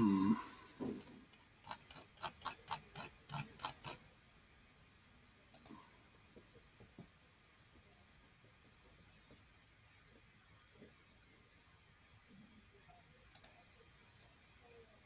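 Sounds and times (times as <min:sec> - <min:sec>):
person humming grunt: 0:00.0 - 0:00.6
mouse scroll wheel ticking: 0:01.6 - 0:04.0, 0:13.3 - 0:13.6.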